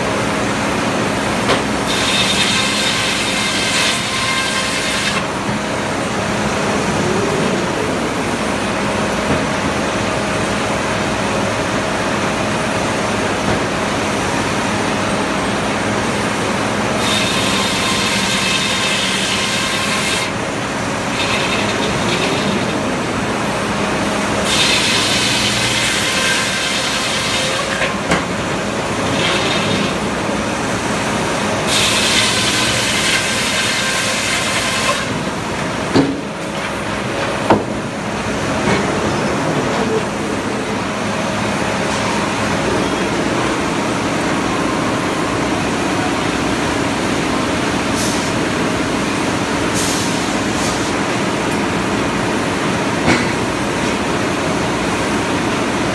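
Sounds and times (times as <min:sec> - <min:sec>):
sawmill running with a hum: 0:00.0 - 0:55.9
circular saw rasping through log: 0:01.9 - 0:05.3, 0:17.0 - 0:23.1, 0:24.3 - 0:28.0, 0:31.7 - 0:35.2.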